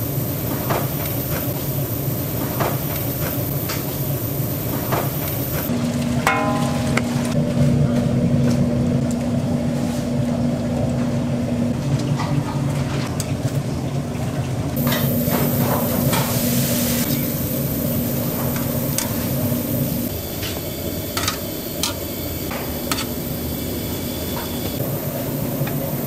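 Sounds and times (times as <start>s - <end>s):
steady machine hum: 0.0s - 12.8s, 13.4s - 26.0s
faint high whine: 14.8s - 26.0s.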